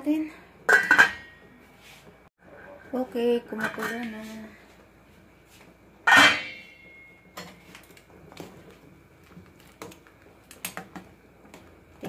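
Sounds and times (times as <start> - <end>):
soup boiling: 7.7 - 12.0.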